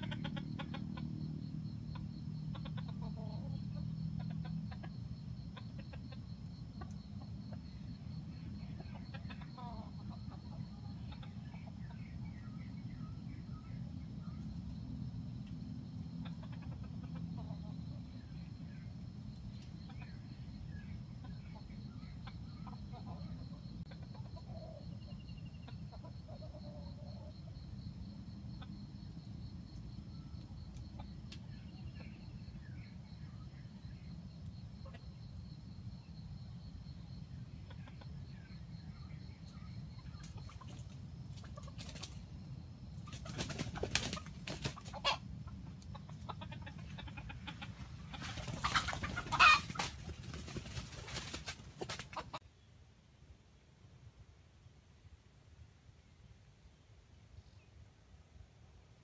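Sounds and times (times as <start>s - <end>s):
rooster clucking: 0.0s - 7.6s, 8.6s - 12.1s, 16.2s - 18.0s, 43.1s - 52.4s
low background hiss: 0.0s - 59.0s.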